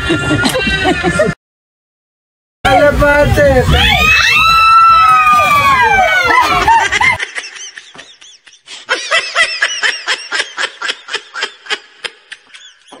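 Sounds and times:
rapid giggling: 6.3 - 13.0.

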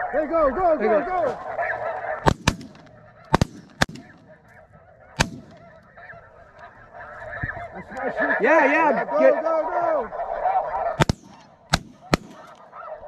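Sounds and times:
geese calling: 0.0 - 13.0
shotgun shots: 2.2 - 4.6, 5.2 - 5.9, 11.0 - 12.7.

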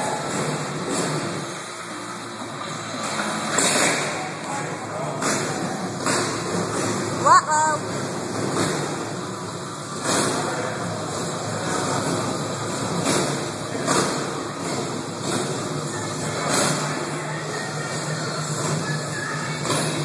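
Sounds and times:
motorcycle engine revving: 0.0 - 7.2, 7.8 - 20.0.

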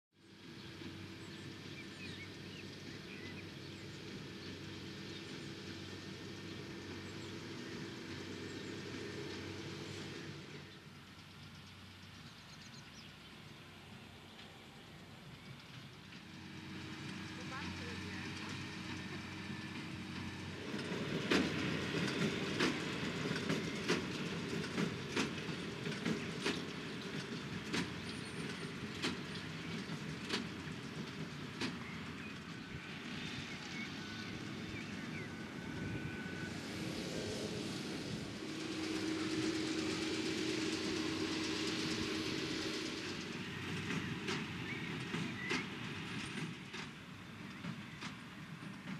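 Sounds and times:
tractor diesel engine running: 0.2 - 48.9
small birds chirping: 0.4 - 16.3, 31.7 - 36.1, 43.1 - 46.3.

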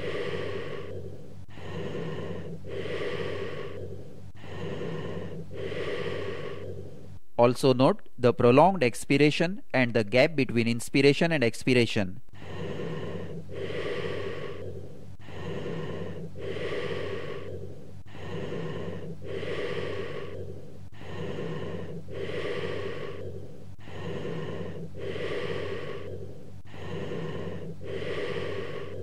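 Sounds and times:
breath sounds through stethoscope: 0.0 - 7.2, 12.3 - 29.0.

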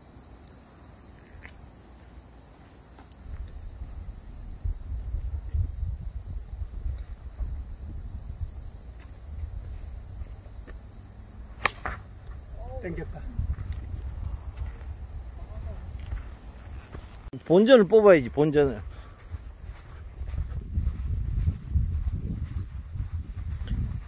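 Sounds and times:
crickets chirping: 0.0 - 24.0
wind rumble on microphone: 3.3 - 11.2, 12.0 - 17.3, 18.6 - 24.0
golf club striking ball: 11.6 - 12.1.

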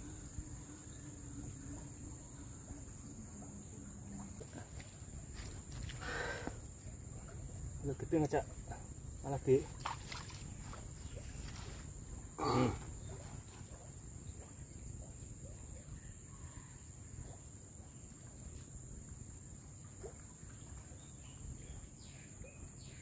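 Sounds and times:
outdoor noise: 0.0 - 23.0
short human vocal sound: 12.4 - 12.9.

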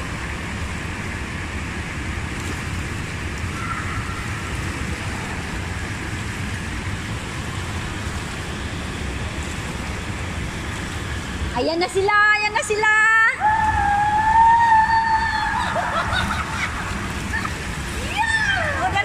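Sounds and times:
whirlpool water churning: 0.0 - 19.0.

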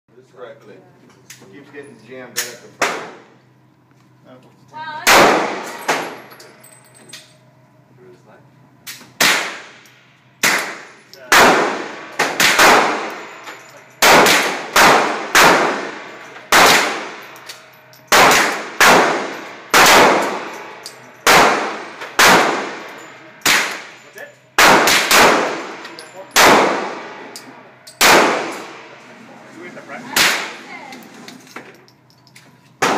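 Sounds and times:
rifle shots echoing: 5.0 - 6.2, 9.2 - 9.8, 10.4 - 13.3, 14.0 - 17.3, 18.1 - 24.0, 24.6 - 27.3, 28.0 - 28.9.

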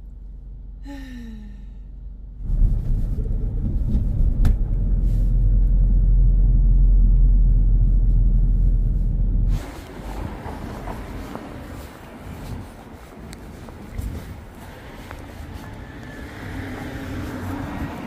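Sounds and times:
car driving rumble inside cabin: 0.0 - 18.0
woman sighing: 0.8 - 1.9.

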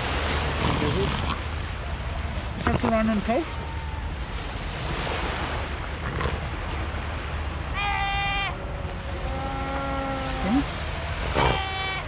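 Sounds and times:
wind and surf rumble: 0.0 - 12.0
seal pup bleating: 7.8 - 8.6, 11.3 - 12.0.

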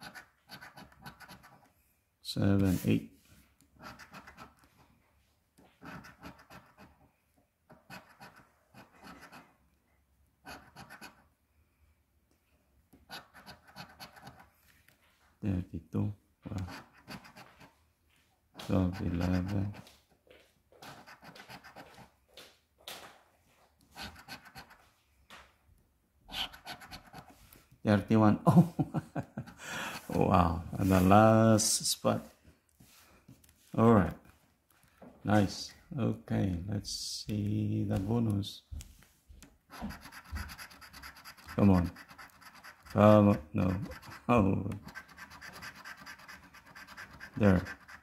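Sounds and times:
coin scraping scratch card: 0.0 - 1.6, 3.8 - 4.6, 5.8 - 6.9, 7.7 - 9.4, 10.4 - 11.2, 13.1 - 14.5, 16.5 - 17.6, 20.8 - 22.0, 24.0 - 24.8, 26.3 - 27.3, 39.7 - 48.0.

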